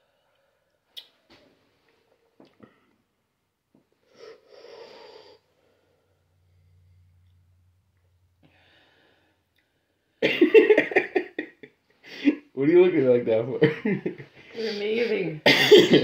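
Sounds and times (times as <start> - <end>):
faint low hum: 0.0 - 11.7
person's hissing breaths: 4.0 - 7.1.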